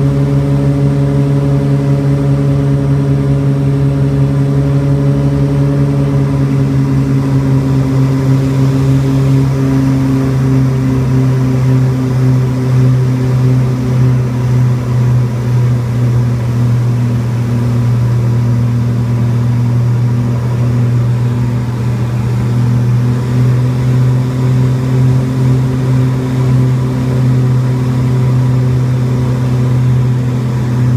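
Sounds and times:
turboprop engines droning: 0.0s - 30.9s.

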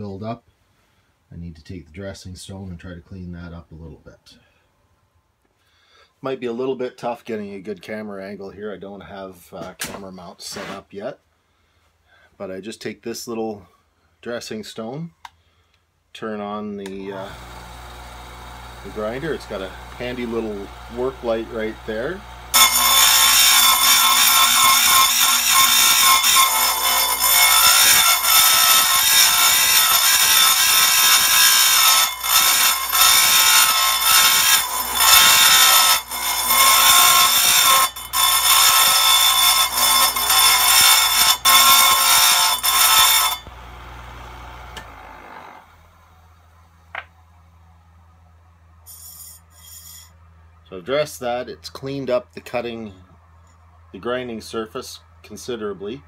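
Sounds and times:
motor hum: 17.0s - 24.4s, 43.4s - 47.0s
high-pitched grinding wheel: 17.1s - 45.8s, 48.9s - 50.1s.

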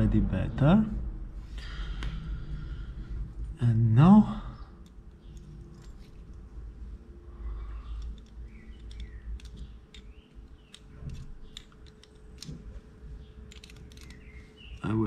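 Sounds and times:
wrench clicking and scraping on metal: 7.9s - 12.6s, 13.5s - 14.3s.

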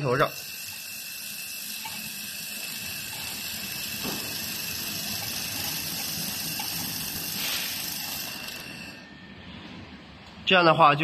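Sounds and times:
laser welding gun hissing: 0.0s - 9.2s.

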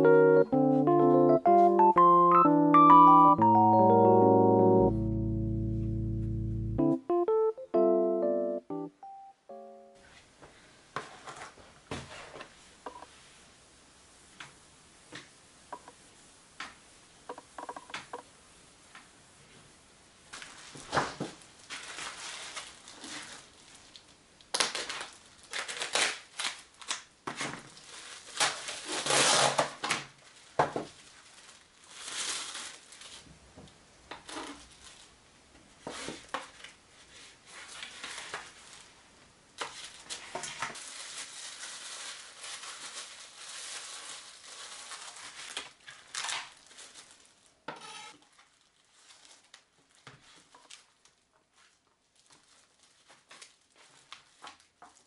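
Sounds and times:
cling film crinkling: 20.3s - 27.1s, 27.7s - 33.3s, 39.6s - 47.5s, 50.6s - 55.0s.

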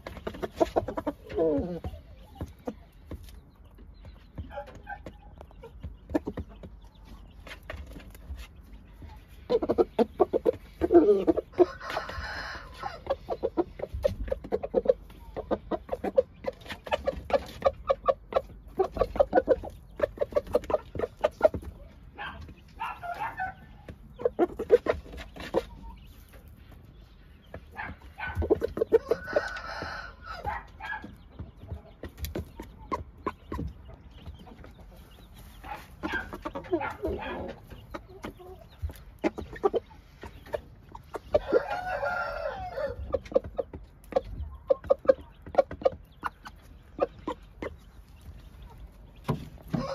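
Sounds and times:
rooster clucking: 0.0s - 2.9s, 8.8s - 26.0s, 27.7s - 31.1s, 34.5s - 47.8s, 48.8s - 49.9s.

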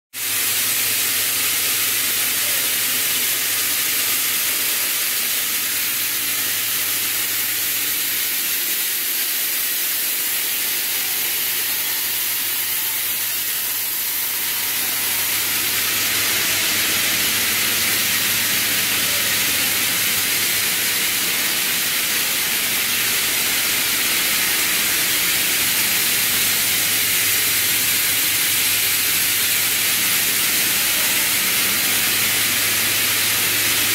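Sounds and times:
machine hiss: 0.2s - 33.9s
low machine hum: 10.9s - 33.9s.

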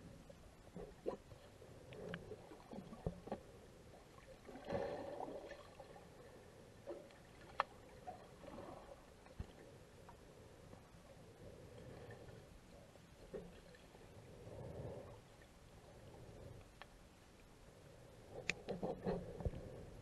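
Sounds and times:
gurgling water: 0.0s - 9.7s
muffled underwater wash: 0.0s - 20.0s.

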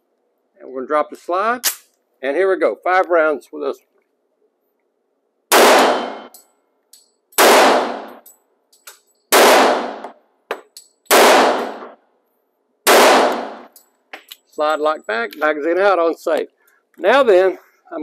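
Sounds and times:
pistol shots echoing indoors: 5.5s - 6.4s, 7.2s - 8.3s, 9.3s - 10.2s, 11.0s - 12.0s, 12.8s - 13.8s
light metallic clinks: 8.2s - 9.3s, 13.7s - 15.2s.

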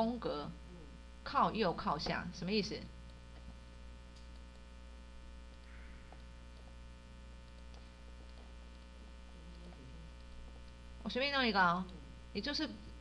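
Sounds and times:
electrical mains hum: 0.0s - 13.0s
faint clicks: 3.1s - 4.7s, 5.5s - 6.8s.

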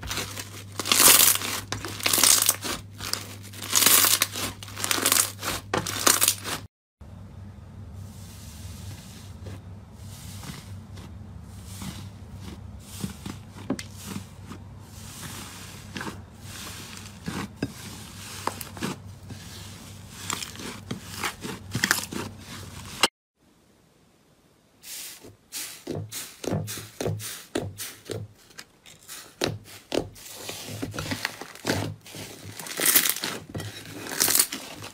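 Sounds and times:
low steady hum: 7.0s - 24.8s.

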